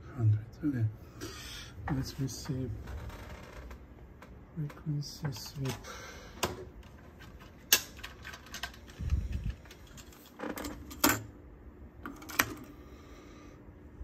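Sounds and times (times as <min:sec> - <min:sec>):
cassette plastic clicks and clatter: 0:06.4 - 0:11.3.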